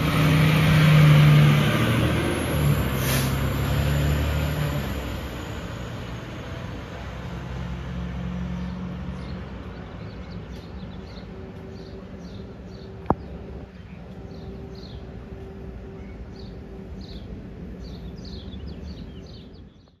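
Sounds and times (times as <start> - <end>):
fire engine diesel rumbling: 0.0 - 19.7
street noise: 0.0 - 20.0
small birds chirping: 8.4 - 20.0.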